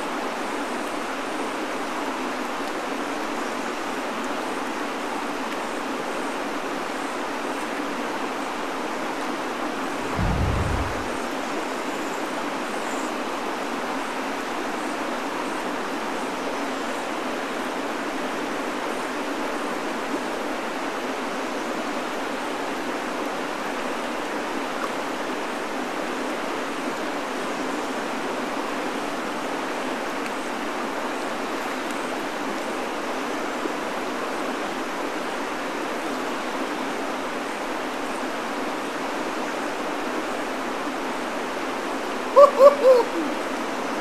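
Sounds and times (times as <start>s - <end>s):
river current rushing: 9.8s - 11.6s.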